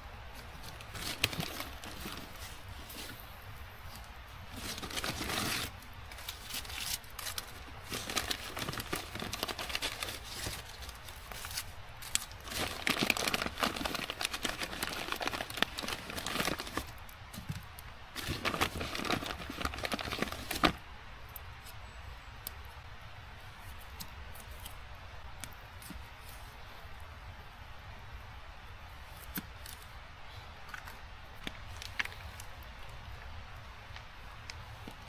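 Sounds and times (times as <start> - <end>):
dry plant material rustling: 0.0 - 20.8.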